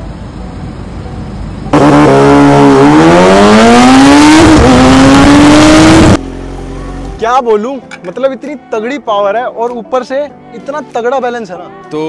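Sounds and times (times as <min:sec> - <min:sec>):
motorcycle engine accelerating: 0:01.7 - 0:07.2.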